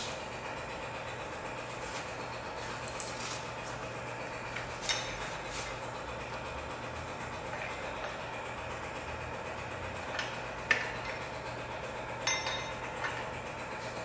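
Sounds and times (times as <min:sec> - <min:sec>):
wrench clinking on metal clamp: 0:12.2 - 0:13.2.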